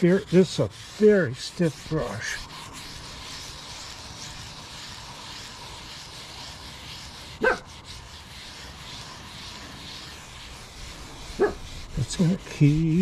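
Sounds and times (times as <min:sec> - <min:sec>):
brass brush scrubbing metal: 0:00.0 - 0:13.0.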